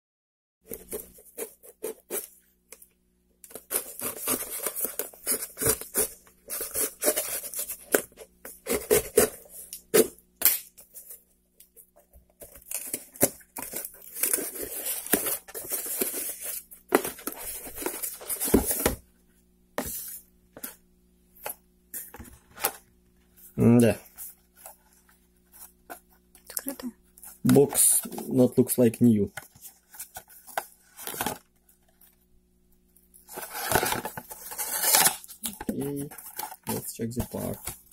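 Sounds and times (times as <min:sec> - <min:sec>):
faint steady hum: 0:00.7 - 0:37.9
cardboard rustling and scraping: 0:03.5 - 0:10.1, 0:12.0 - 0:19.0, 0:29.2 - 0:32.2, 0:33.2 - 0:37.9
tape tearing: 0:33.3 - 0:37.7
scissors cutting packing tape: 0:33.5 - 0:35.6.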